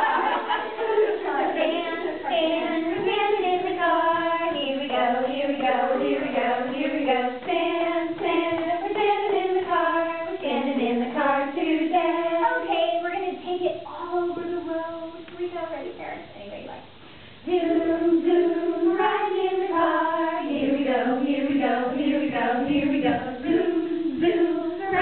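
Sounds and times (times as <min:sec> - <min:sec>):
women singing: 0:00.0 - 0:15.3, 0:17.4 - 0:25.0.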